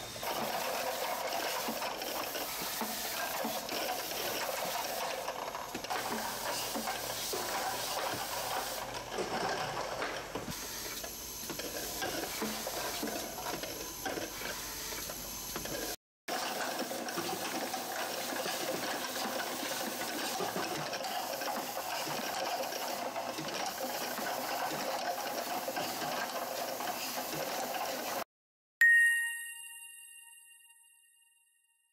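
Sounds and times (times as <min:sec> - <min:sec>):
bottling machine clattering: 0:00.0 - 0:10.6, 0:15.6 - 0:28.2.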